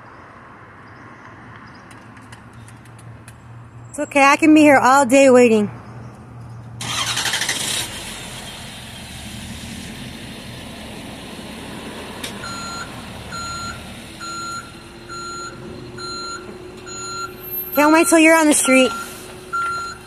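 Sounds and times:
diesel pickup engine starting and running: 4.9s - 20.0s
reversing alarm beeps: 12.4s - 20.0s.

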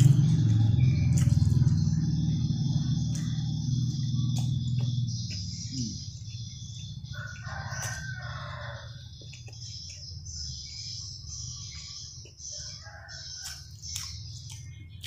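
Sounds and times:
low rumble: 0.0s - 6.6s
steady high-pitched drone: 0.0s - 7.7s
rooster crowing: 7.0s - 9.1s, 12.5s - 13.8s.

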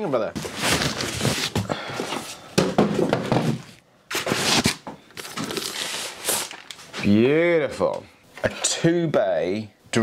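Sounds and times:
cardboard scraping and rustling: 0.4s - 1.7s.

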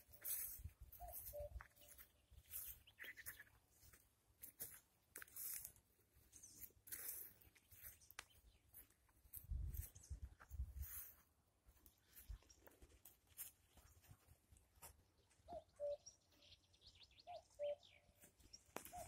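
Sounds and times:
grass swishing with footsteps: 0.0s - 15.0s.

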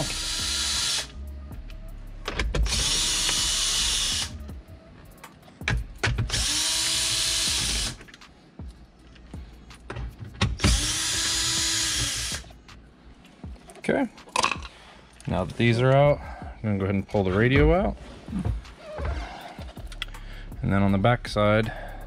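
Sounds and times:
power drill whining: 0.0s - 1.1s, 2.6s - 4.4s, 6.3s - 8.0s, 10.6s - 12.5s.

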